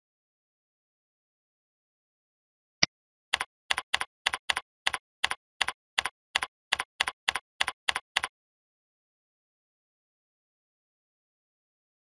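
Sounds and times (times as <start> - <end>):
keyboard typing: 3.3 - 8.3.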